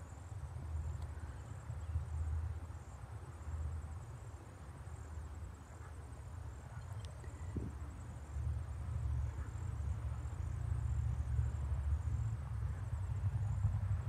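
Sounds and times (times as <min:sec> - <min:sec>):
wind buffeting microphone: 0:06.8 - 0:09.4.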